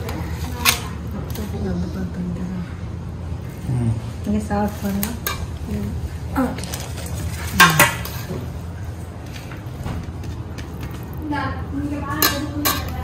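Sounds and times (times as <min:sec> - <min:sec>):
soft voices murmuring: 0:00.0 - 0:09.7
metal spoon scraping and clinking: 0:12.1 - 0:13.0.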